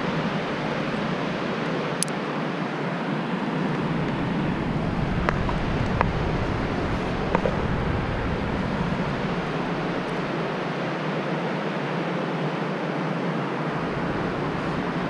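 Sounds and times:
wind buffeting microphone: 0:03.7 - 0:10.6, 0:13.7 - 0:15.0.

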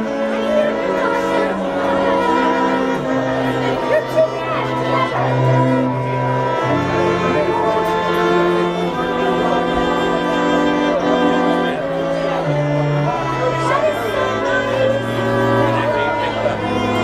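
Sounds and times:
string quartet playing slow piece: 0:00.0 - 0:17.0.

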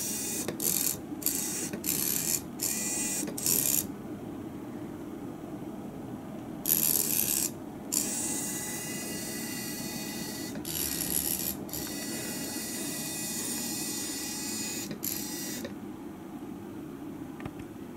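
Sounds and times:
small robot motors whirring: 0:00.0 - 0:03.9, 0:06.7 - 0:15.7.

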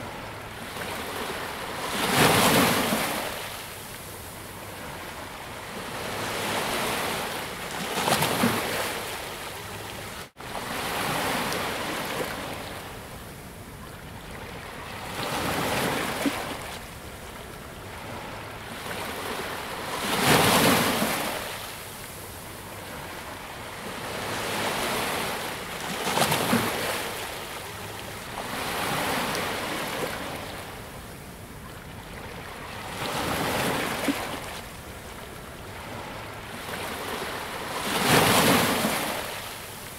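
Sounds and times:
sea waves breaking on beach: 0:35.7 - 0:39.9.

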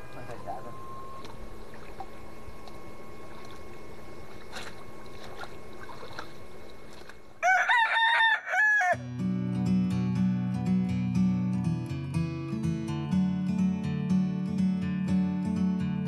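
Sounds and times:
rooster crowing: 0:07.4 - 0:09.0
acoustic guitar music: 0:09.0 - 0:16.0.

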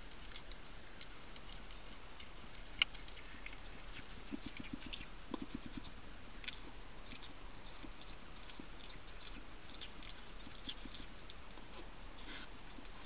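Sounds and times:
hedgehog scratching and clicking: 0:00.0 - 0:13.0.

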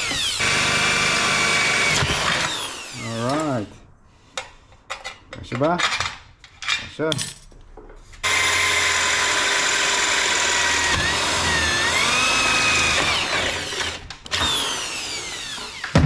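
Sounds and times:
electric drill whining: 0:00.0 - 0:03.4, 0:08.2 - 0:16.0.

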